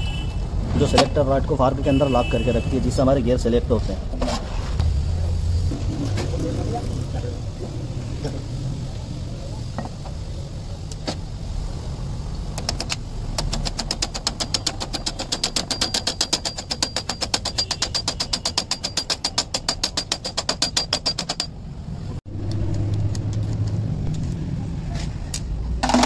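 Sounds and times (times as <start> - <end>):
rapid metallic tapping: 12.7 - 21.6.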